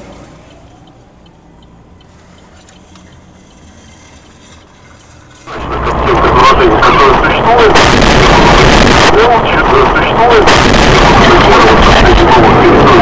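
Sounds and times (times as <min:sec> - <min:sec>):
faint ticks: 0:00.0 - 0:05.4
car engine idling: 0:00.0 - 0:12.4.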